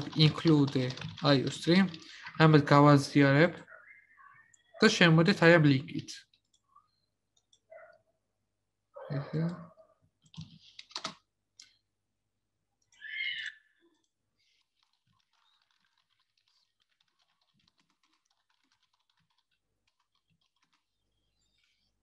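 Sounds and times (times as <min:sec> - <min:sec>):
keyboard typing: 0:00.0 - 0:03.2, 0:10.2 - 0:11.8, 0:13.9 - 0:21.7.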